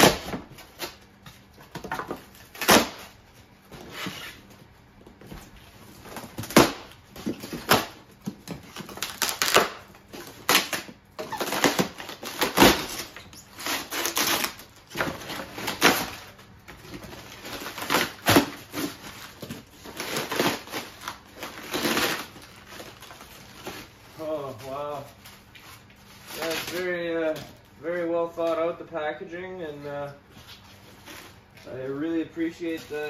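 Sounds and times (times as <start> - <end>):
foam and cardboard crunching: 0.0 - 4.5, 5.4 - 28.7, 29.8 - 33.0
plastic wrap rustling: 0.0 - 33.0.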